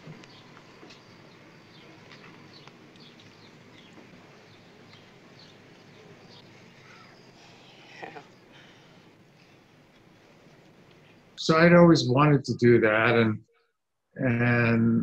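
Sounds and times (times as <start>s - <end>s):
small birds chirping: 0.0s - 11.4s
outdoor background hiss: 0.0s - 13.4s, 14.0s - 15.0s.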